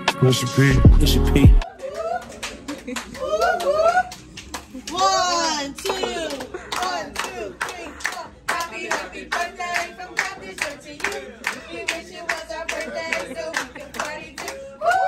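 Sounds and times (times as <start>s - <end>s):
rhythmic hand clapping: 1.4s - 15.0s
voices singing along: 5.9s - 15.0s.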